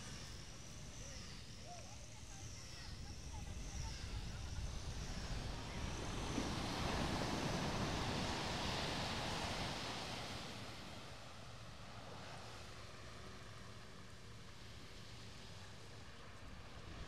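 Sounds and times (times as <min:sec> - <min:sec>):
ocean wave washing in: 0:05.4 - 0:12.9.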